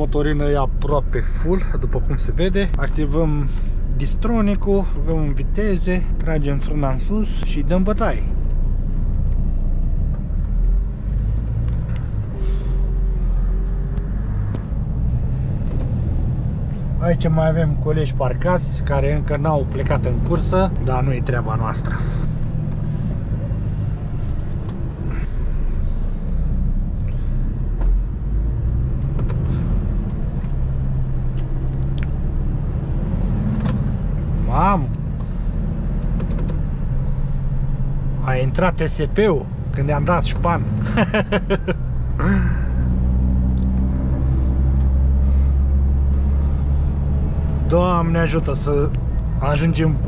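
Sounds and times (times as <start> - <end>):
truck diesel engine rumbling: 0.0 - 50.0.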